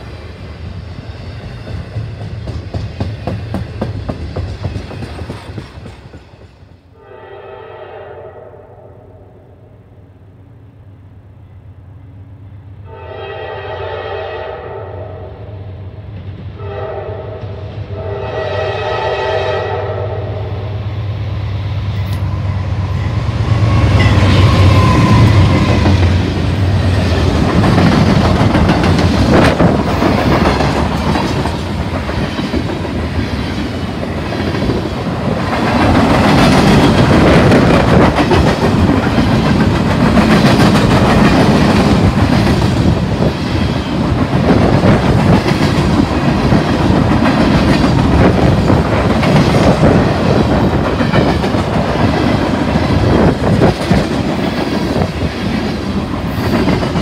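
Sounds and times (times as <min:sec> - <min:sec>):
train wheels clickety-clack: 0:00.0 - 0:06.8, 0:23.2 - 0:57.0
train horn: 0:06.9 - 0:09.6, 0:12.8 - 0:15.9, 0:16.6 - 0:20.9.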